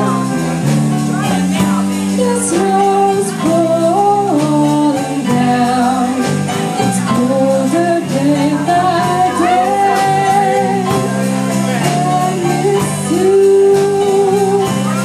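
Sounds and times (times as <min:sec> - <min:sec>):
live rock band playing: 0:00.0 - 0:15.0
woman singing: 0:01.1 - 0:15.0.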